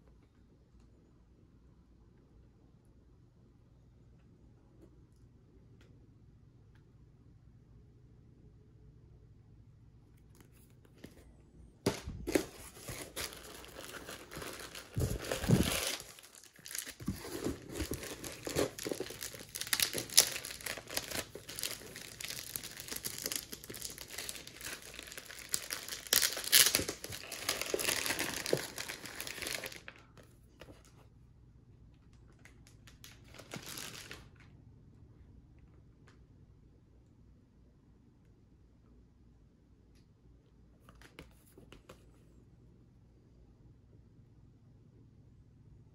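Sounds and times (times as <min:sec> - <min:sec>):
handling noise: 0:11.8 - 0:23.2
plastic packaging crinkling: 0:11.9 - 0:30.2, 0:32.1 - 0:34.4.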